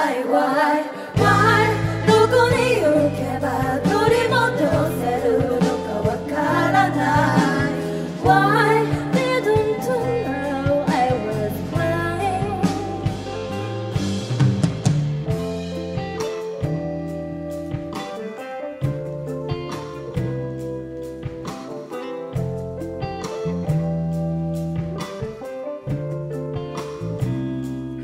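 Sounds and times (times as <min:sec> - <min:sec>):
women singing pop song: 0:00.0 - 0:13.4
instrumental accompaniment: 0:01.2 - 0:28.0.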